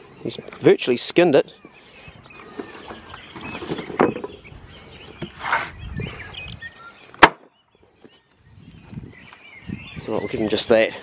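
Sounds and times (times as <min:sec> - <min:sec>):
cleaver chopping on wooden block: 0:07.2 - 0:07.5.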